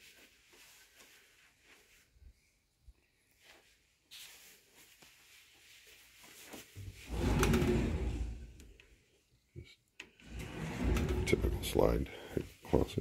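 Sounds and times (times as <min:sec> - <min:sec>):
sliding closet door opening: 0:06.8 - 0:08.8, 0:10.2 - 0:12.0.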